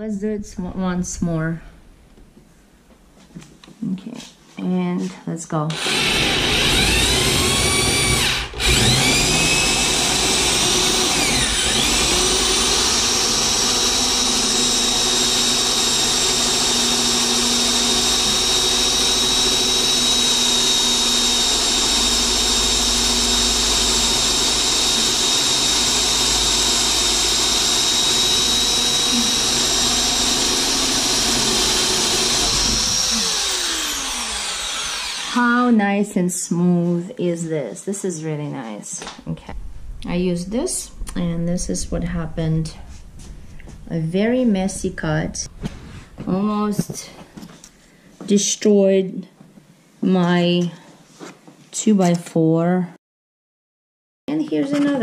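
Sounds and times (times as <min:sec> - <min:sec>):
electric drill boring wood: 0:05.7 - 0:35.6.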